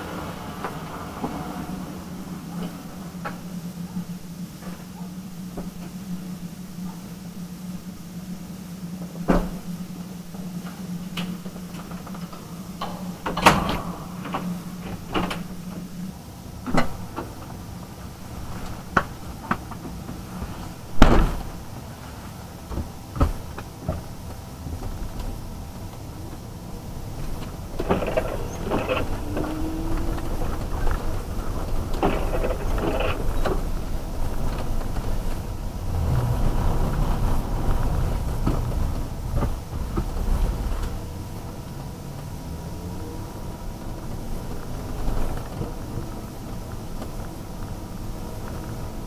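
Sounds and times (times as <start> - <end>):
windscreen wipers sweeping: 14.0 - 49.0.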